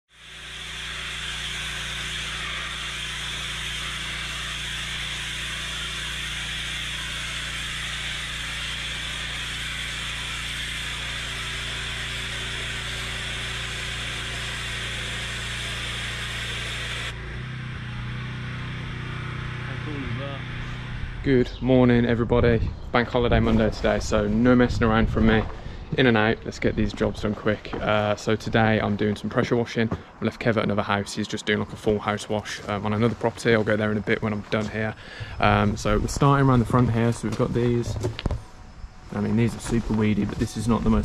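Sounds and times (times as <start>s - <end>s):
pressure washer spray hissing: 0.1s - 17.2s, 39.1s - 41.0s
pressure washer motor hum: 0.1s - 21.5s, 23.4s - 41.0s.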